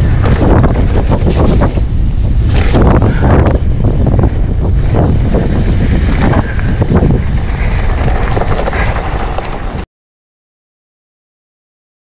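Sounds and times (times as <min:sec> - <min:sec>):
bike knocking and rattling: 0:00.0 - 0:09.8
wind buffeting microphone: 0:00.0 - 0:09.8
tyre rumble on dirt: 0:04.2 - 0:09.8.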